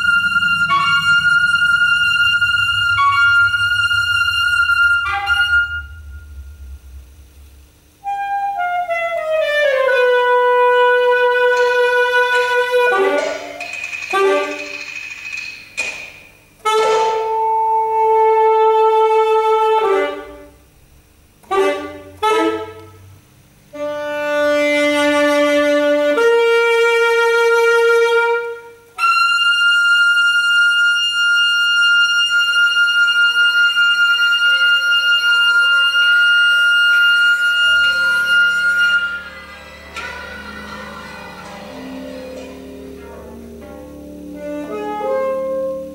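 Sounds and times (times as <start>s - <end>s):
solo saxophone playing: 0.0s - 7.0s, 8.0s - 14.8s, 16.6s - 20.7s, 21.4s - 45.9s
low drone: 0.0s - 8.1s, 37.6s - 45.9s.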